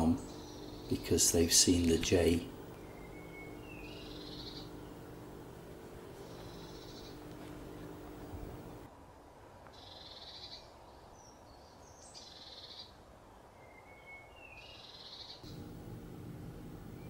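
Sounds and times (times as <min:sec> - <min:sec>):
bird alarm calls buzzy churring: 0:00.0 - 0:08.9
thin whistled bird notes: 0:02.8 - 0:05.0, 0:06.2 - 0:08.8, 0:13.5 - 0:15.7.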